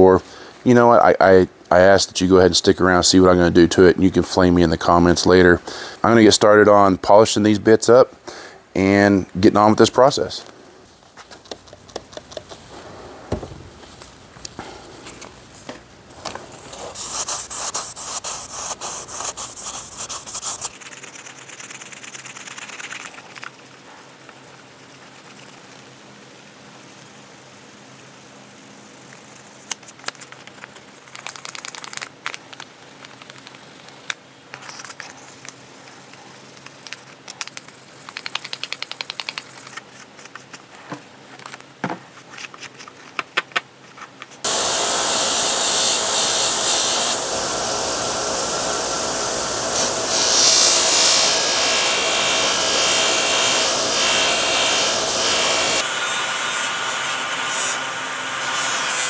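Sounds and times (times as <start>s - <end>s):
sandpaper rubbing on steel: 16.6s - 23.3s.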